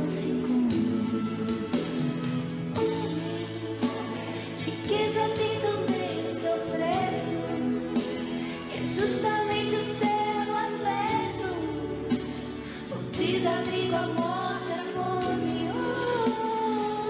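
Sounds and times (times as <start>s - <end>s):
woman singing into a microphone: 0.0s - 17.0s.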